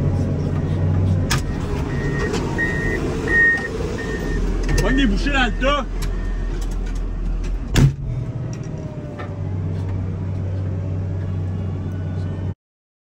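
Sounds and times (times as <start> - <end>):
diesel engine running: 0.0 - 12.6
loud clunk: 7.5 - 8.7.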